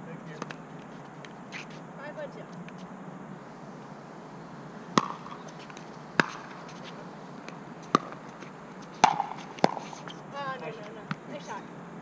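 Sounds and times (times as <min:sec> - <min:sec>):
paddles hitting plastic ball: 0:09.0 - 0:10.0.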